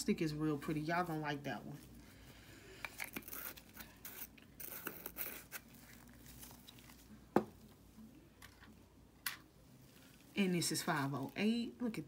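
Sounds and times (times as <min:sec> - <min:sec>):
objects scraping and rustling: 0:02.7 - 0:10.5.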